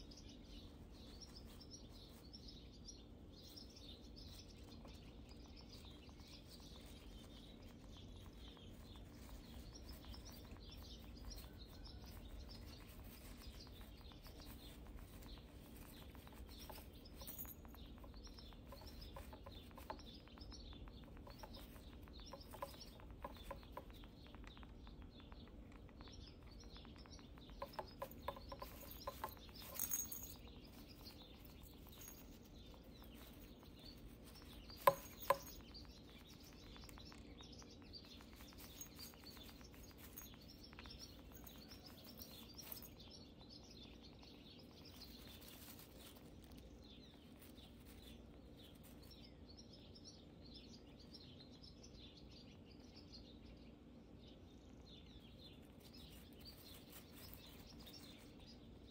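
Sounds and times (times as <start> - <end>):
scratches and crackles: 0.0 - 49.4, 55.1 - 58.9
hamster rustling in wood shavings: 5.7 - 17.3, 27.6 - 35.3, 44.9 - 49.1, 55.6 - 58.4.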